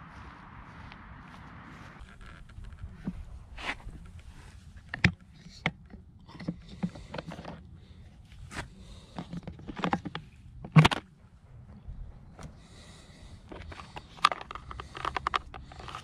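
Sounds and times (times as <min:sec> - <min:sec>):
low rumble: 0:00.0 - 0:04.9, 0:11.1 - 0:13.9.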